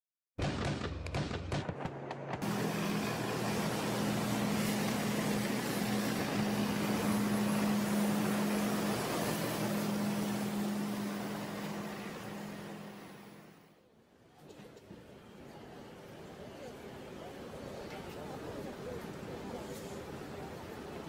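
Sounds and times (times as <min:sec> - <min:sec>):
diesel engine humming: 0:01.9 - 0:13.8.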